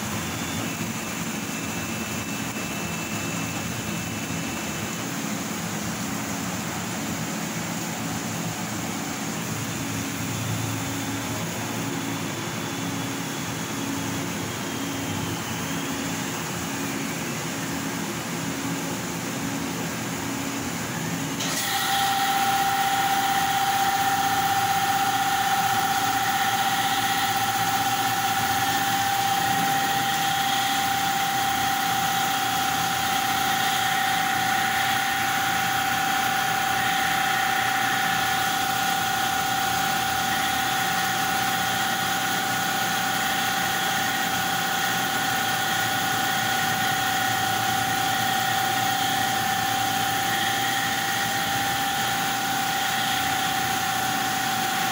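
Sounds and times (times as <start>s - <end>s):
high whine: 0.0s - 21.5s
laser cutter mechanical hum: 0.0s - 54.9s.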